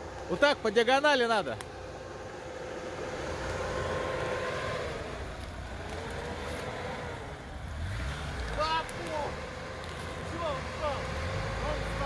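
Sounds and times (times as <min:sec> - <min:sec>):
car engine pulling under load: 0:00.0 - 0:12.0.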